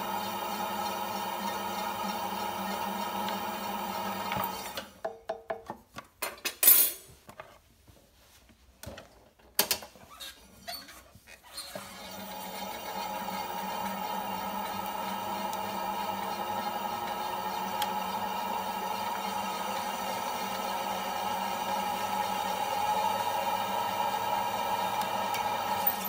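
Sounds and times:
potter's wheel humming: 0:12.2 - 0:26.0.

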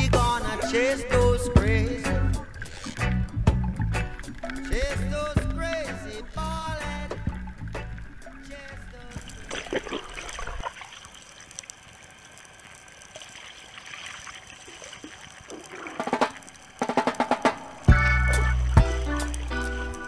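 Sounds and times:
underwater water noise: 0:00.0 - 0:20.0
small clicks and crackles: 0:02.3 - 0:20.0
rapid pulses: 0:14.9 - 0:20.0.

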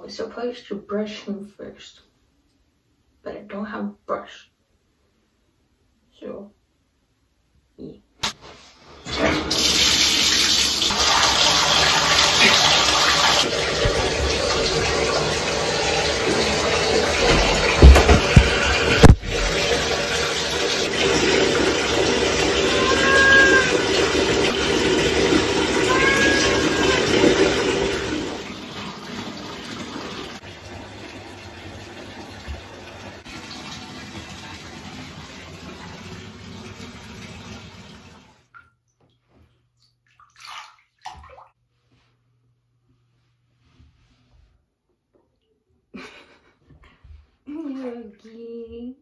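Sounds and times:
water gushing into bathtub: 0:09.0 - 0:38.6, 0:39.2 - 0:41.6.

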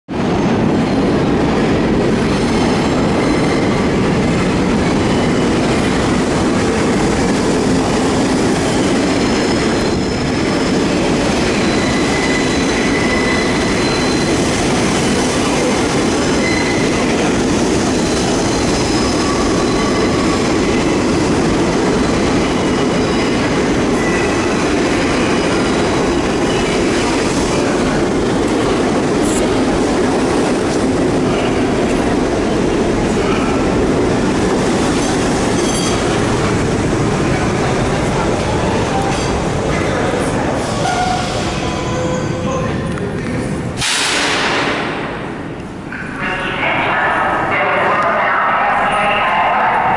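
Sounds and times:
subway train wheels rumbling: 0:00.1 - 0:49.9
high wheel squeals: 0:08.7 - 0:14.4, 0:16.4 - 0:17.0.

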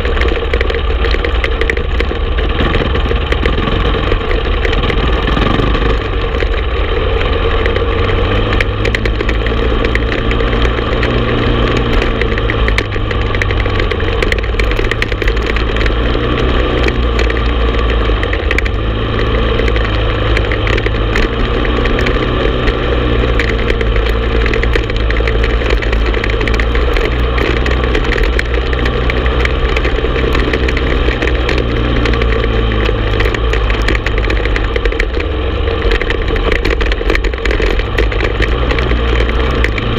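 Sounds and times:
atv engine running: 0:00.0 - 0:39.9
small clicks and rattles: 0:00.0 - 0:39.9.

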